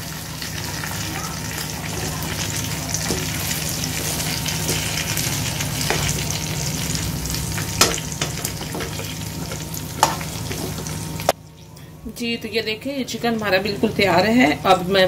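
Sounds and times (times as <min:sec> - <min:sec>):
chicken sizzling and crackling in oil: 0:00.0 - 0:11.4.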